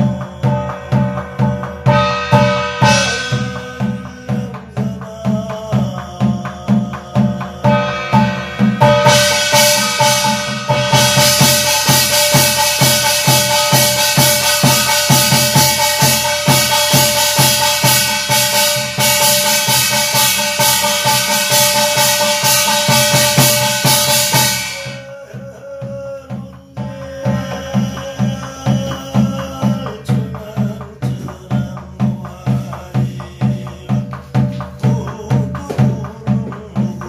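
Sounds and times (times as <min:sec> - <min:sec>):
barrel drum beating fast: 0:00.0 - 0:37.0
small brass gong ringing: 0:01.0 - 0:04.0.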